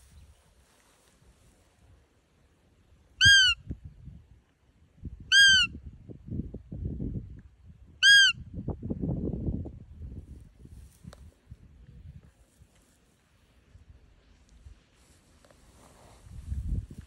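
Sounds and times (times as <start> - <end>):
deer call squeaks: 3.2 - 3.6, 5.3 - 5.7, 8.0 - 8.4.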